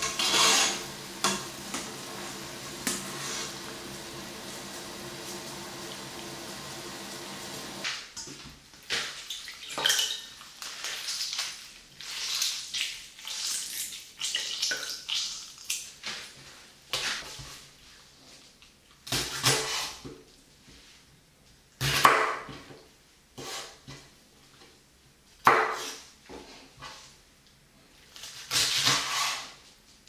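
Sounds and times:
greens rinsed in water bowl: 0.0 - 7.9
water boiling: 0.0 - 7.9.

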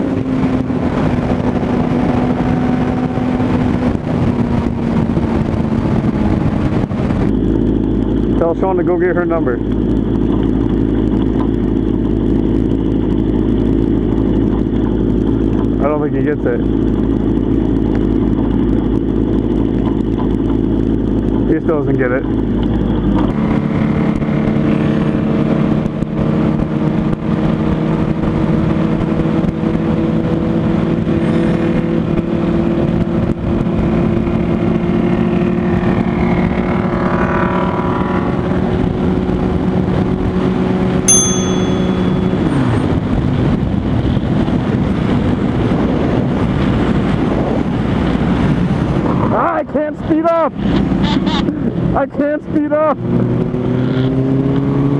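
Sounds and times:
motorcycle engine running: 38.6 - 48.9
short metallic ding: 41.1 - 42.7.

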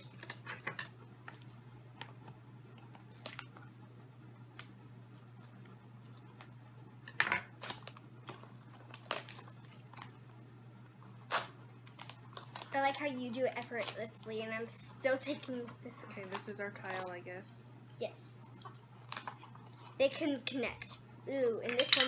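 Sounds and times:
packaging crinkling: 7.5 - 10.3, 11.2 - 14.2, 18.9 - 20.0.

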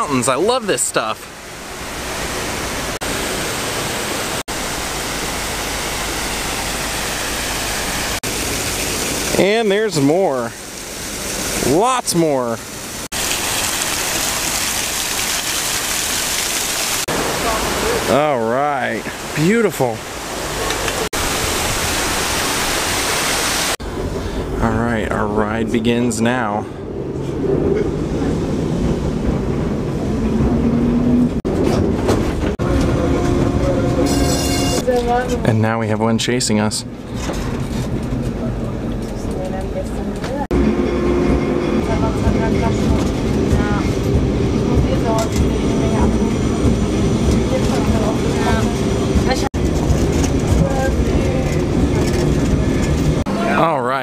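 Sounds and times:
fountain water splashing: 0.1 - 23.8
electric tram rolling on rails: 23.8 - 35.5, 36.8 - 53.7.

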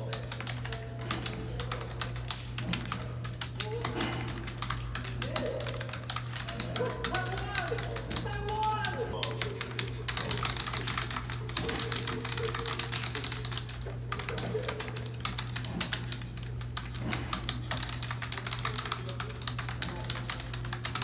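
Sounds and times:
faint television voices: 0.0 - 21.0
rapid keyboard typing: 0.0 - 21.0
steady low hum: 0.0 - 21.0.

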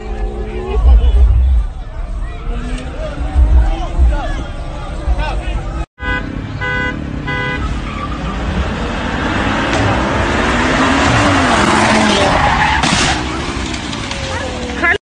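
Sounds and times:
car engine revving: 0.0 - 15.0
car tyres screeching: 0.0 - 15.0
car horn toot: 6.0 - 8.0.

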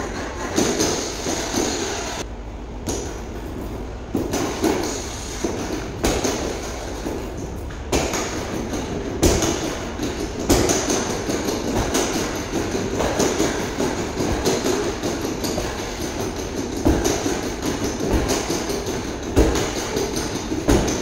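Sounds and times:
steady rushing noise: 0.0 - 21.0
punches thudding on punching bag: 4.2 - 7.3, 7.9 - 21.0.

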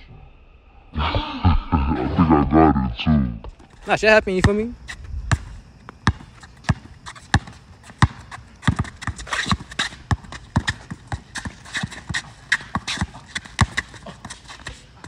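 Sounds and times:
basketball bouncing on asphalt: 4.3 - 15.0.

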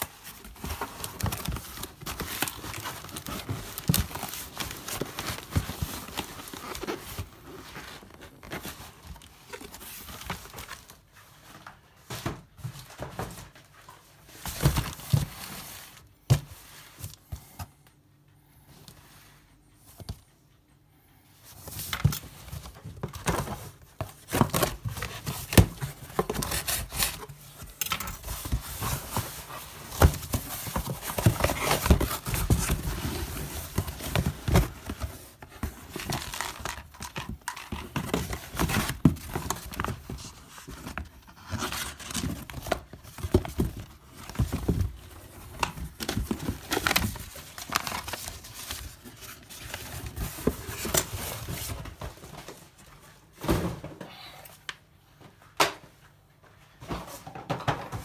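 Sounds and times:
cardboard rustling and tearing: 0.0 - 11.0, 21.7 - 52.3.

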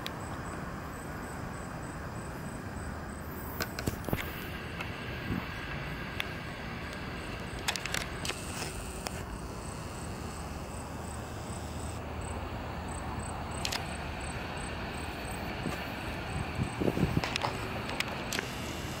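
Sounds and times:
steady low rumble: 0.4 - 19.0
sharp clicks: 6.9 - 9.3, 13.6 - 14.0, 17.2 - 18.8.

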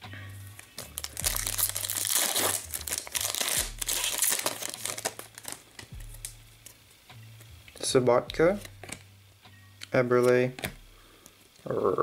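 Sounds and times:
foil wrapper tearing and crinkling: 0.8 - 5.9.

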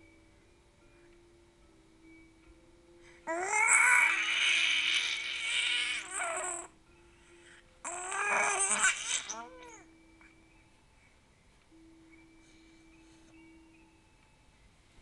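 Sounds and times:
baby squealing with delight: 7.9 - 9.8.

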